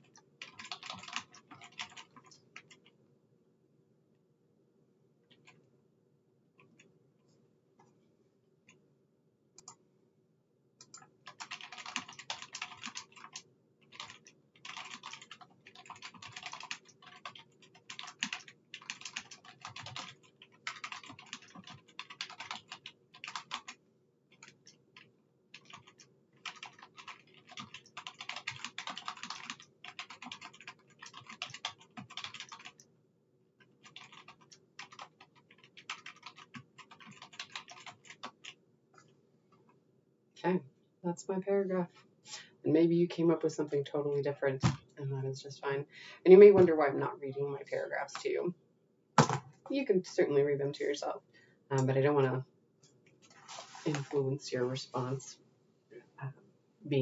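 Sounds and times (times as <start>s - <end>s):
typing on computer keyboard: 0.0s - 2.9s, 10.8s - 32.8s, 33.6s - 38.6s.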